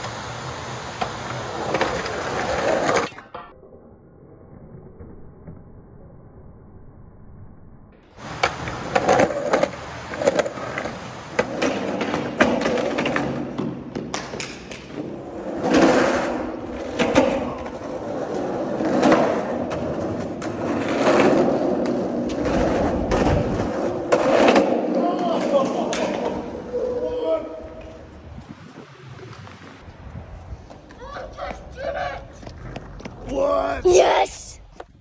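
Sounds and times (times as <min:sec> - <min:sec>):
skateboard wheels rolling on concrete: 0:00.0 - 0:03.4, 0:08.0 - 0:35.0
skateboard clacks and knocks: 0:08.2 - 0:26.6.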